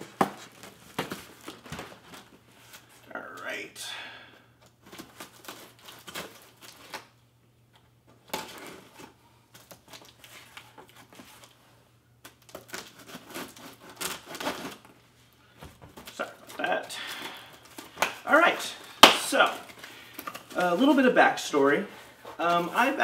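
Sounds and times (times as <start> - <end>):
knife cutting cardboard and tape: 12.5 - 14.9.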